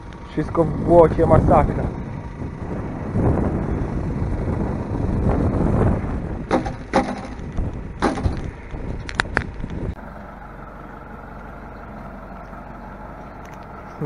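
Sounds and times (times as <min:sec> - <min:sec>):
rumbling gusty noise: 0:00.0 - 0:10.0
sharp knocks and clatters: 0:06.5 - 0:09.5.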